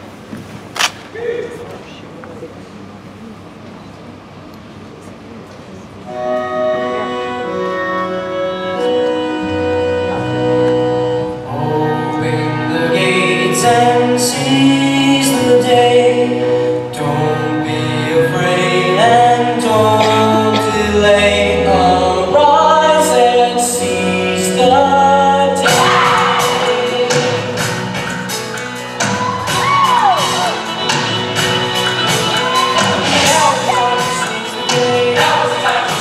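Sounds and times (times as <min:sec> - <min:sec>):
show tune with singing chorus: 0:11.0 - 0:36.0
crowd cheering and whooping: 0:25.6 - 0:26.6, 0:28.9 - 0:34.5.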